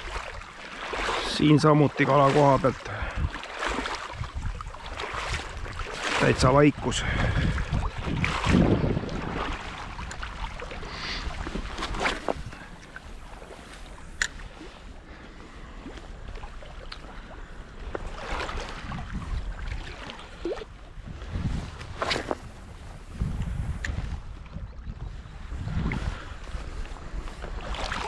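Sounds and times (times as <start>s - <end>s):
sea water washing at shore: 0.0s - 28.0s
wind on microphone: 2.7s - 14.6s, 17.8s - 28.0s.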